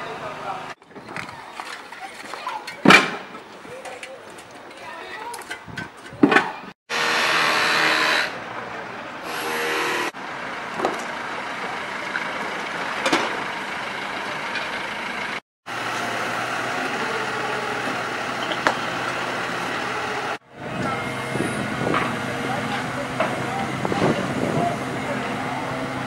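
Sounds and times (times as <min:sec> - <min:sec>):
vehicle engine running: 0:10.1 - 0:26.0.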